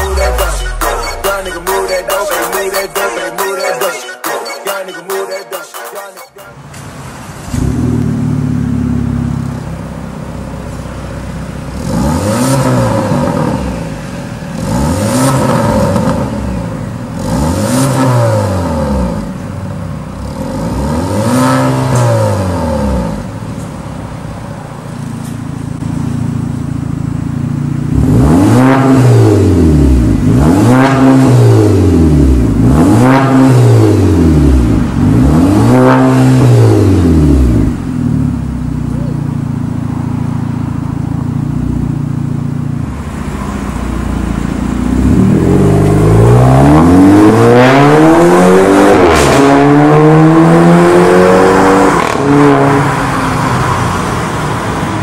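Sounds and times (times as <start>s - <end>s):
car engine idling and revving: 0.0s - 3.5s, 6.4s - 55.0s.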